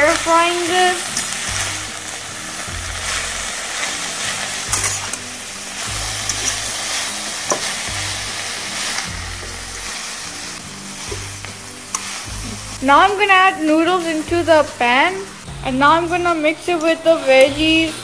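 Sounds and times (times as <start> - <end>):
vegetables sizzling in hot oil: 0.0 - 18.0
metal utensil clicking on wok: 1.1 - 1.4, 4.7 - 5.3, 6.3 - 6.7, 7.5 - 7.8.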